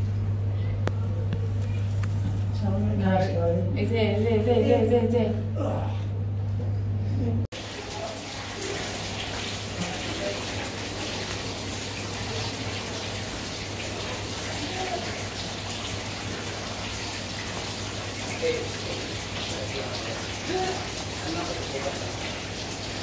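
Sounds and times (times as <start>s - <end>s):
low steady hum: 0.0s - 23.0s
aquarium water rushing: 7.5s - 23.0s.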